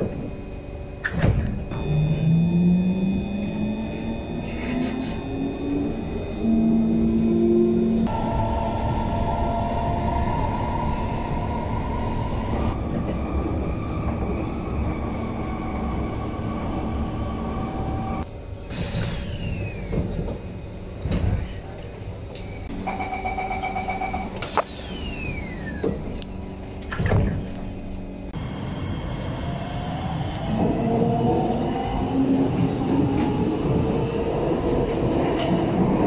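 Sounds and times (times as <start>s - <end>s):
train rumble: 2.9s - 18.3s, 25.9s - 36.0s.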